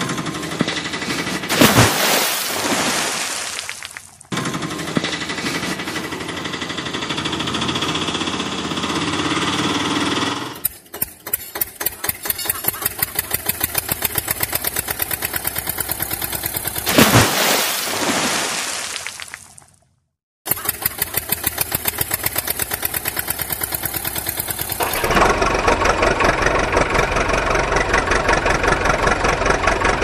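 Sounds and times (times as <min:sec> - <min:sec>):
tractor engine chugging: 0:00.0 - 0:01.5, 0:04.3 - 0:16.9, 0:20.5 - 0:30.0
engine revving: 0:04.3 - 0:17.2, 0:20.5 - 0:30.0.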